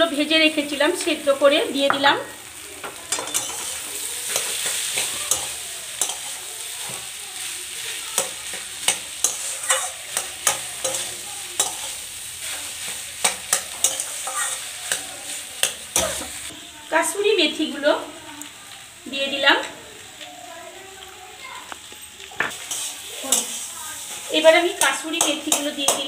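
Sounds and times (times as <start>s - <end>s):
frying sizzle: 0.0s - 26.0s
spatula scraping metal pan: 3.1s - 7.1s, 8.2s - 16.4s, 22.5s - 26.0s
spatula clinks against pan: 8.2s - 11.9s.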